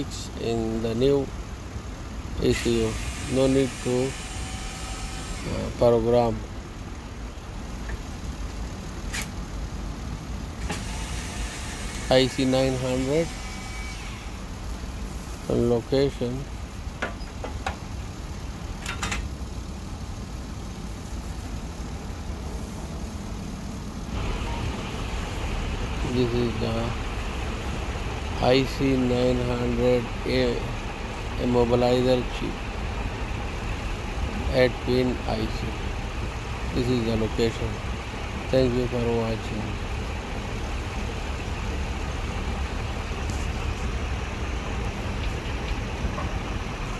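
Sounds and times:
faint hiss: 0:14.3 - 0:18.9.

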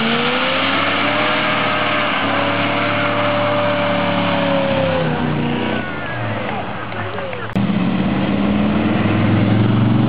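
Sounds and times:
spinning tyres hissing: 0:00.0 - 0:06.8
car engine at high revs: 0:00.0 - 0:10.0.

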